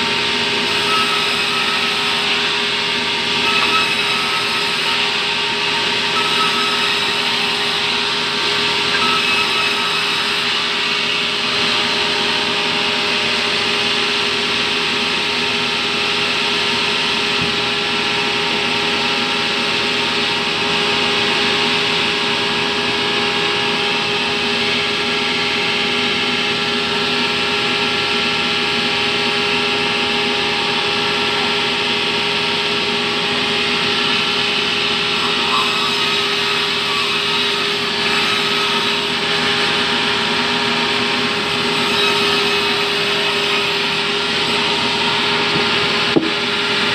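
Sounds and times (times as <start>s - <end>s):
band saw cutting wood: 0.0s - 18.0s, 30.6s - 46.9s.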